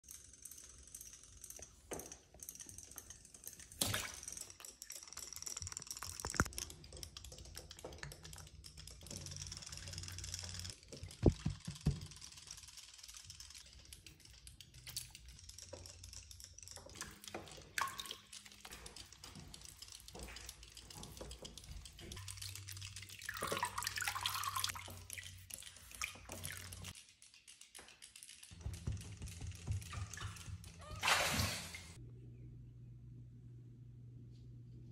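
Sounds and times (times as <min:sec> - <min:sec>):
small knocks and clicks: 0:00.1 - 0:22.4, 0:25.8 - 0:31.0
bathwater splashing: 0:17.0 - 0:26.9, 0:29.7 - 0:32.0.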